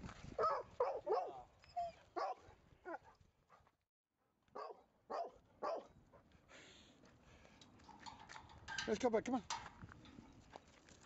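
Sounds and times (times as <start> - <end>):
dog barking: 0.4 - 1.5, 2.2 - 3.1, 4.6 - 5.9.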